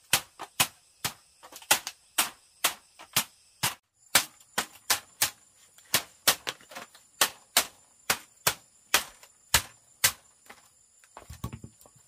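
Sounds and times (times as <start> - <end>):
chopping bamboo: 0.0 - 10.6.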